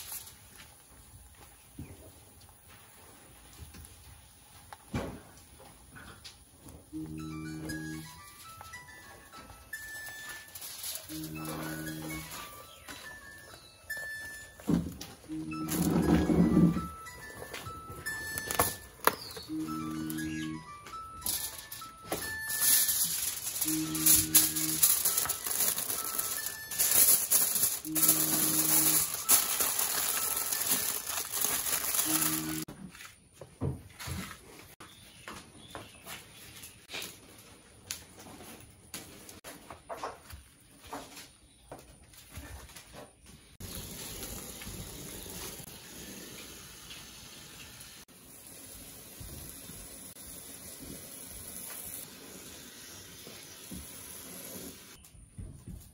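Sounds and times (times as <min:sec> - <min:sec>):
aluminium foil crinkling: 0:00.0 - 0:00.8, 0:09.7 - 0:13.2, 0:21.0 - 0:32.7
background music: 0:06.9 - 0:32.6
wood fire hissing: 0:43.6 - 0:55.0.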